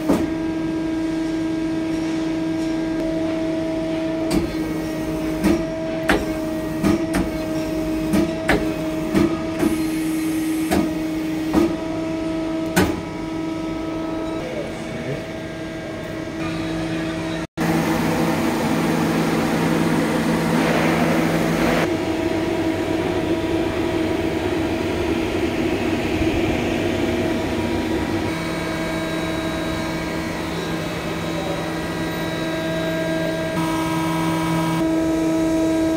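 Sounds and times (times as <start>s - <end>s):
machine hum with held tones: 9.4s - 35.9s.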